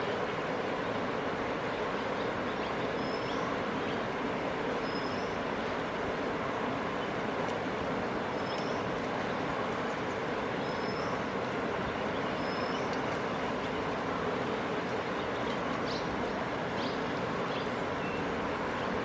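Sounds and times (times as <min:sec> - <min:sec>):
river water rushing: 0:00.0 - 0:19.0.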